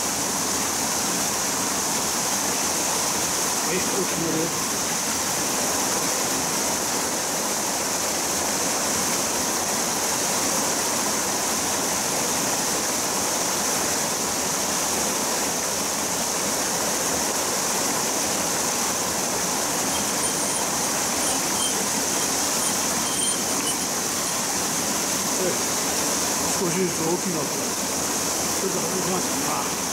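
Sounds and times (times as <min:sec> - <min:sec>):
water pouring over weir: 0:19.3 - 0:25.8.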